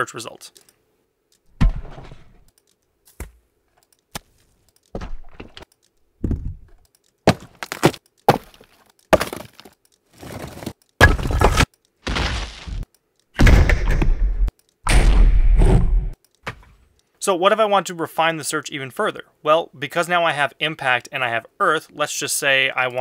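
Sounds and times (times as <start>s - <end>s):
rocks crashing onto dirt: 7.3s - 12.8s.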